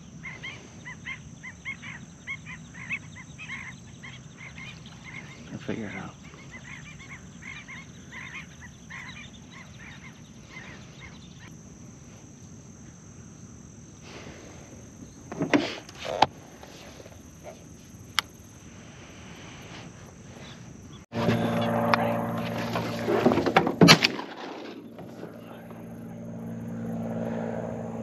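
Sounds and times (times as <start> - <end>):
ducks calling: 0.0 - 11.5.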